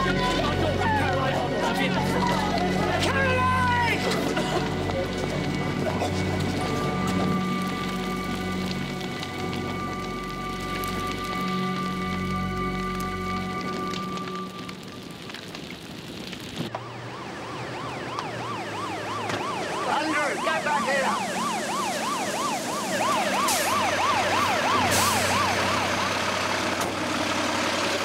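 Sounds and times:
fire engine siren wailing: 0.0 - 28.0
truck engine running: 22.9 - 28.0.

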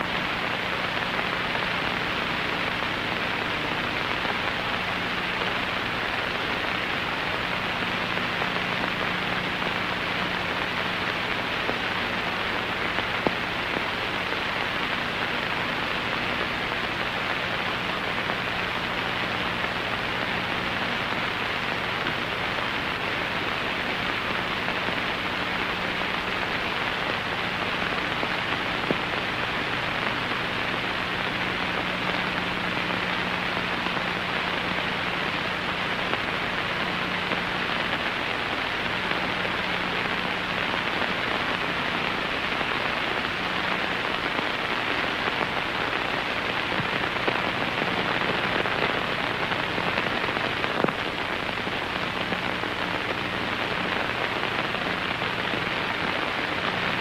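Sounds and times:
steady hiss: 0.0 - 57.0.

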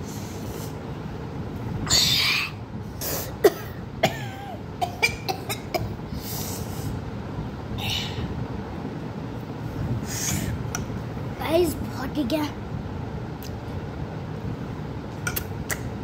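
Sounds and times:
boy coughing: 3.2 - 6.0.

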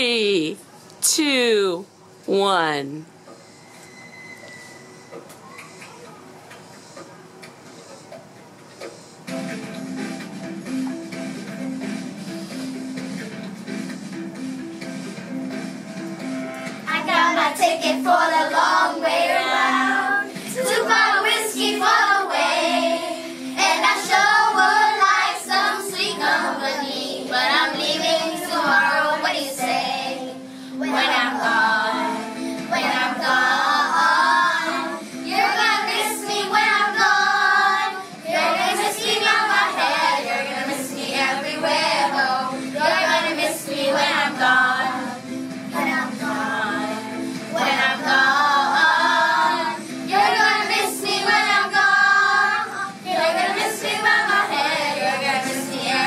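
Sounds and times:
children singing together: 16.8 - 56.0.

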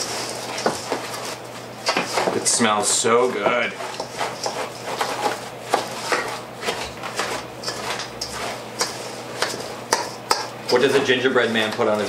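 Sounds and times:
spoon scraping metal bowl: 3.6 - 12.0.

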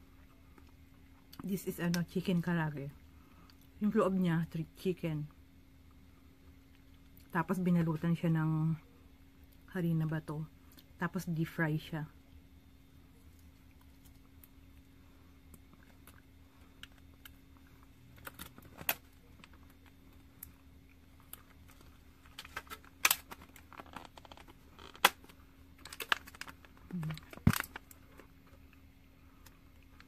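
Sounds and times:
plastic packaging crackling: 21.3 - 28.0.

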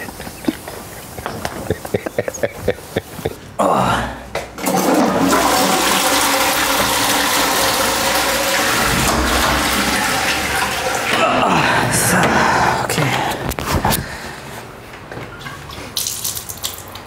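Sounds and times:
toilet flushing: 4.6 - 12.8.

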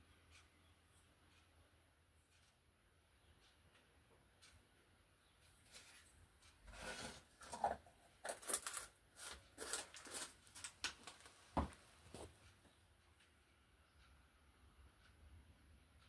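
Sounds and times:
plastic pots scraping and clicking: 5.6 - 12.3.

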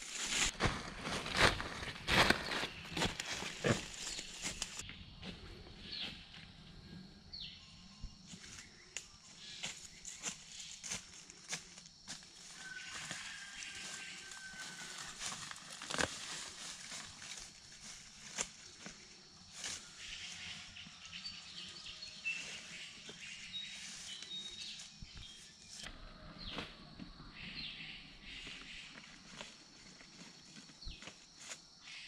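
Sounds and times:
dry leaves rustling and crunching: 0.0 - 4.8, 9.7 - 20.5.

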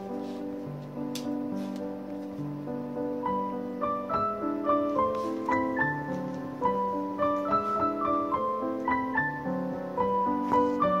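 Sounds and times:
solo piano waltz: 0.0 - 11.0.

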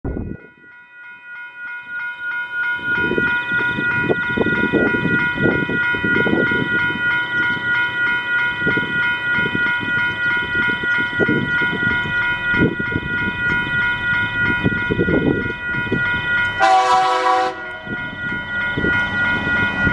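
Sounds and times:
level crossing bell ringing: 0.5 - 19.9
low train rumble: 1.8 - 19.9.

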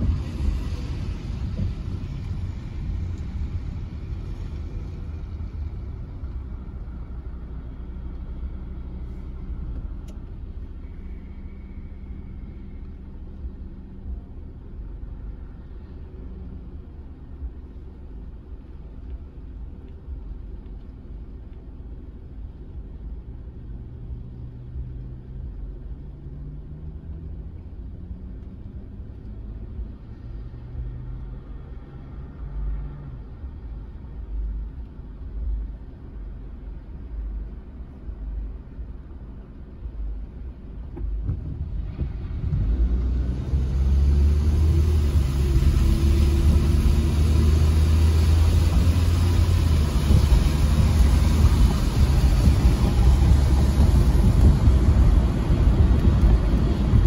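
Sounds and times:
tyres hissing on wet road: 0.0 - 16.5, 41.8 - 57.0
car idling hum: 0.0 - 57.0.

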